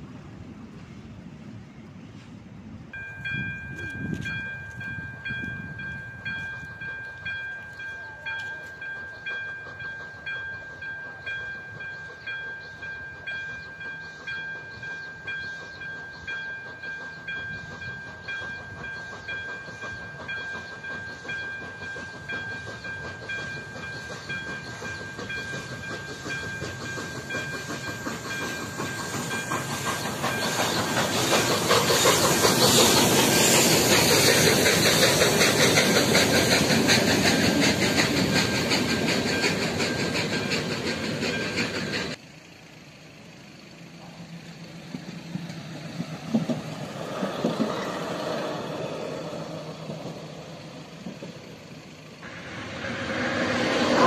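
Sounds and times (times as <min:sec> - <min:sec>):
train passing with hissing: 0:00.0 - 0:54.0
level crossing warning bell: 0:03.0 - 0:30.7
track vehicle running past: 0:23.9 - 0:54.0.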